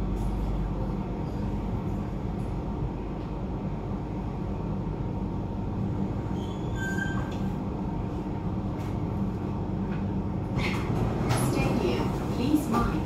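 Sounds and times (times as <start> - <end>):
metro train wheels rumbling: 0.0 - 13.0
train hum: 0.0 - 13.0
high wheel squeal: 6.3 - 7.5.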